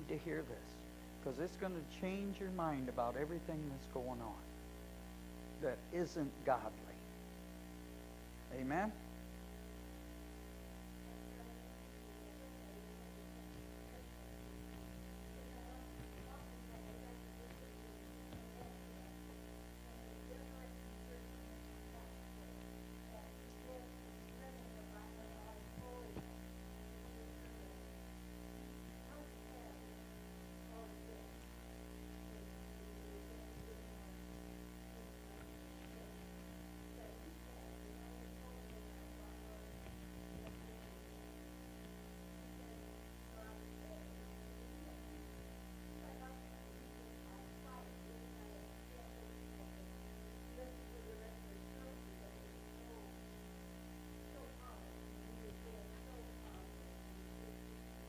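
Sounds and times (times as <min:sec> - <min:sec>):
electrical mains hum: 0:00.0 - 0:58.0.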